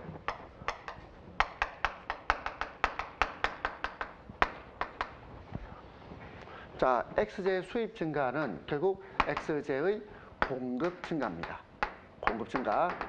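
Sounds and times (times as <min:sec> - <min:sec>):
chalk tapping on blackboard: 0:00.2 - 0:05.2, 0:09.2 - 0:09.7, 0:10.4 - 0:13.0.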